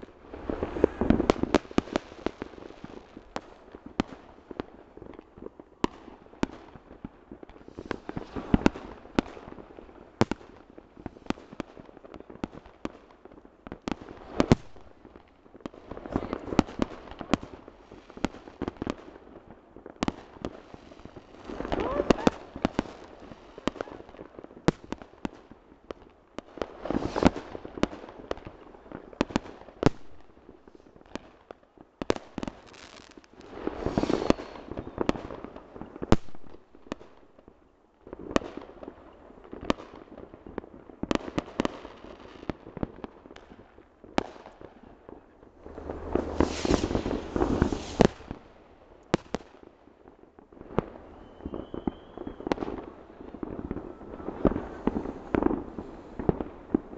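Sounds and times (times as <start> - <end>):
fireworks bangs: 0.0 - 4.2, 20.0 - 24.2, 32.2 - 37.0, 45.1 - 49.5, 50.8 - 56.9.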